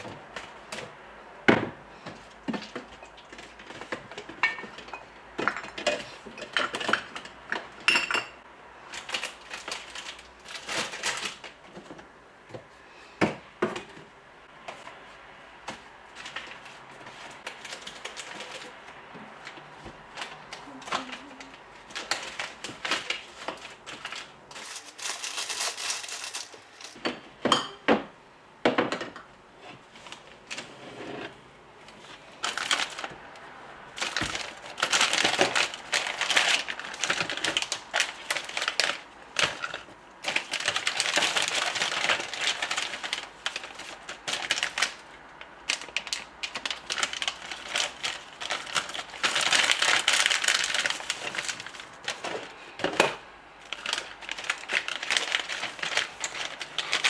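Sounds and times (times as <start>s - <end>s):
plastic packets crinkling: 8.8s - 11.8s, 16.1s - 27.0s, 32.4s - 57.0s.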